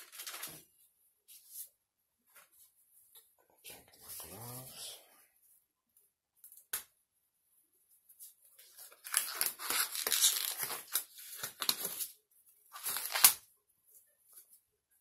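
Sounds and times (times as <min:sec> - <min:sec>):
gloves crinkling and stretching: 0:08.5 - 0:13.4.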